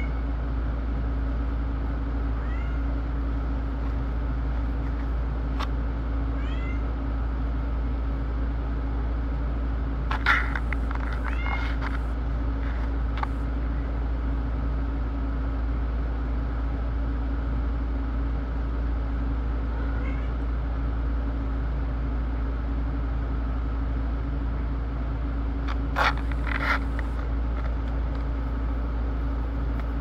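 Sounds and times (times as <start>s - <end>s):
steady low hum: 0.0s - 30.0s
cat meowing: 2.3s - 3.0s, 6.4s - 7.0s, 11.1s - 12.0s, 19.7s - 20.4s.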